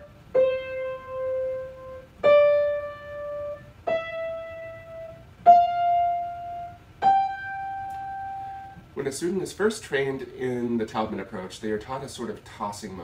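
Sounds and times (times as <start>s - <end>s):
piano single notes: 0.0s - 8.9s.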